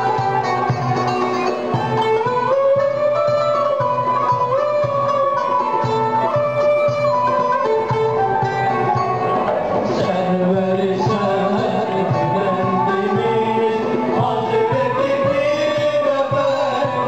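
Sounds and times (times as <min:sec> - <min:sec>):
drum strokes: 0:00.0 - 0:17.0
qanun: 0:00.0 - 0:17.0
violin: 0:00.0 - 0:17.0
man singing: 0:09.8 - 0:17.0.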